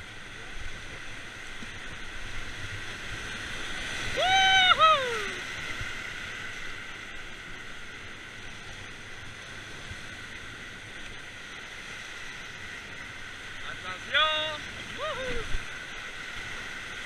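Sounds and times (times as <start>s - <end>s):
whitewater rushing: 0.0s - 8.2s, 9.0s - 17.0s
person yelling: 4.1s - 5.4s, 14.9s - 15.5s.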